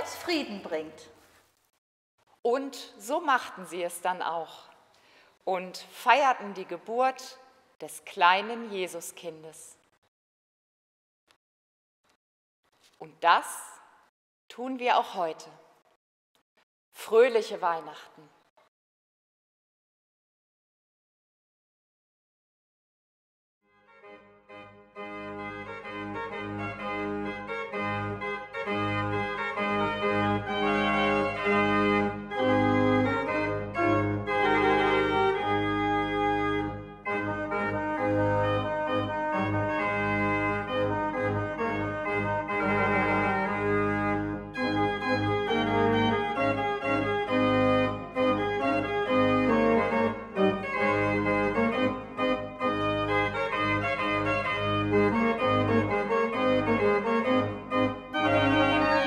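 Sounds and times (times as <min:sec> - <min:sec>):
organ music: 0:23.9 - 0:59.0.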